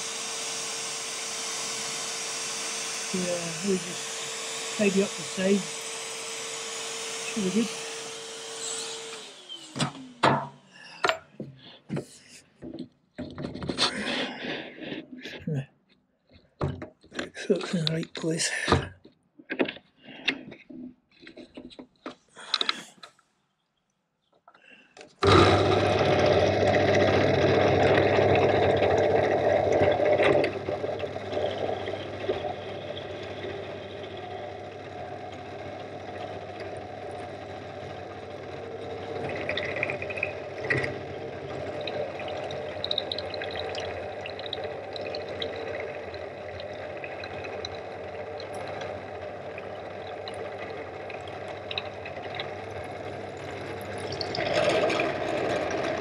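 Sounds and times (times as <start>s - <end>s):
drill milling metal: 0.0s - 11.1s, 25.2s - 56.0s.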